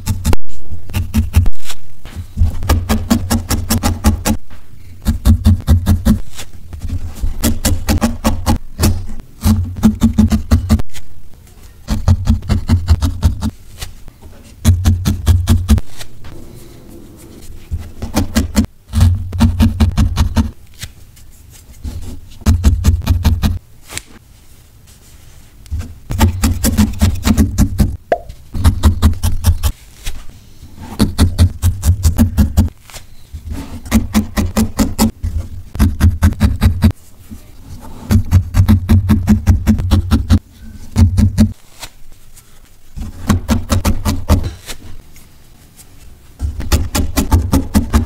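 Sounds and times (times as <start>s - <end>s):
felting needle poking wool: 0.0s - 16.2s, 25.7s - 30.2s, 30.8s - 37.0s, 38.1s - 41.6s.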